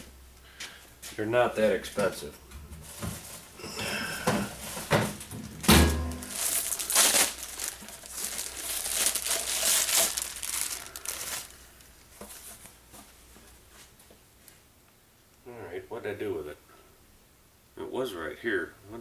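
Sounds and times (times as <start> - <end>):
plastic bag crinkling: 2.8 - 12.8.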